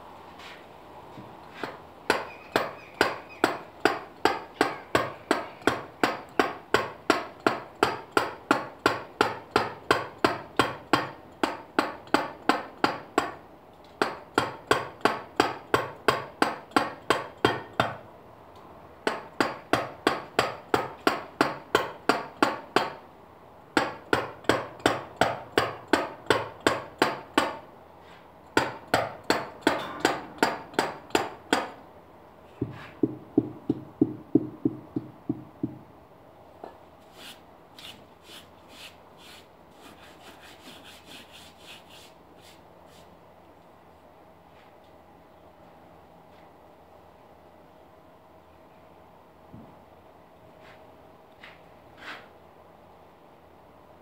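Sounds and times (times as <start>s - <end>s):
mallet striking chisel on stone: 1.6s - 13.4s, 28.6s - 31.8s, 32.6s - 35.8s.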